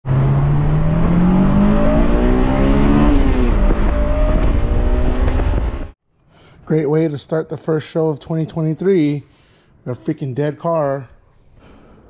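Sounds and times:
car engine accelerating: 0.0s - 6.0s.

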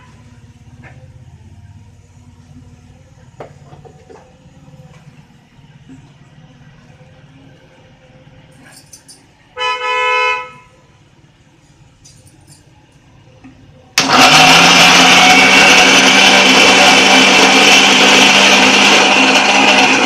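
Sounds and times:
horn-like beep: 9.6s - 10.8s
mixer grinder motor running: 14.0s - 20.0s.

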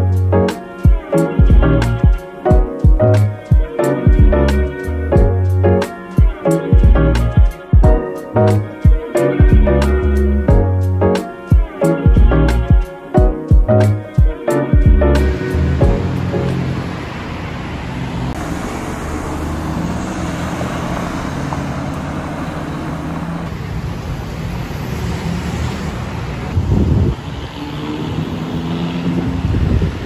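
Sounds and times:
road traffic rumble: 0.0s - 30.0s
low rumble: 14.9s - 18.4s.

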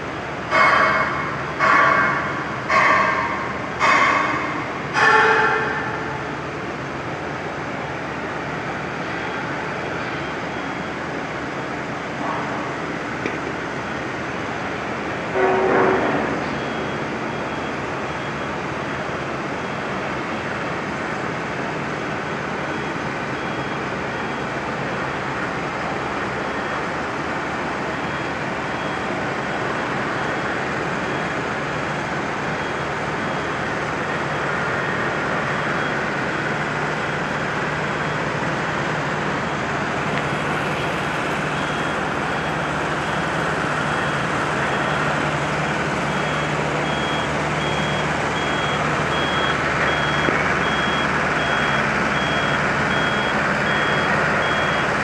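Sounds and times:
diesel engine running: 0.0s - 55.0s
high-pitched warning beeper: 43.8s - 55.0s.

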